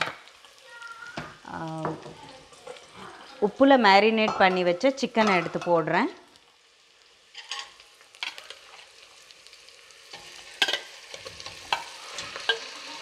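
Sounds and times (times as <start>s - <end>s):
food sizzling in oil: 0.0s - 13.0s
metal spoon scraping and clinking pot: 7.4s - 8.7s, 10.1s - 12.9s.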